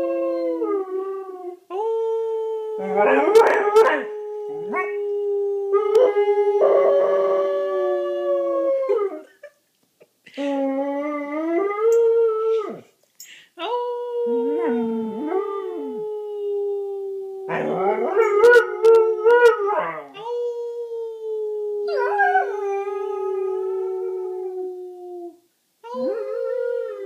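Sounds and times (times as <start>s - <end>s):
person howling: 13.6s - 19.3s, 19.9s - 27.0s
dog howling: 16.9s - 20.5s, 21.8s - 25.3s, 25.9s - 27.0s.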